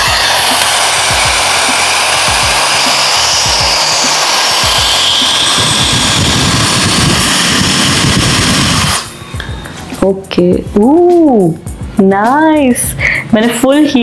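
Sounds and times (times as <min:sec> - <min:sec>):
hair styler blowing air: 0:00.0 - 0:09.6.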